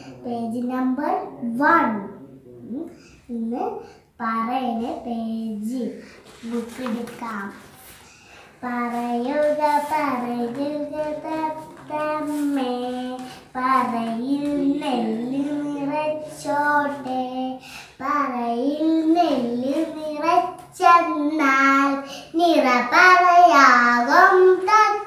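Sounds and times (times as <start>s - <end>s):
girl breathing: 6.0s - 6.4s, 7.9s - 8.6s, 17.6s - 18.0s, 22.0s - 22.4s
young girl singing solo: 9.4s - 25.0s.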